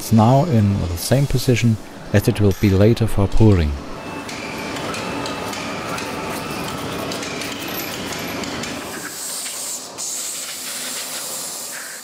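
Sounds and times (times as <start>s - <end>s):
compressed air hissing: 8.9s - 12.0s.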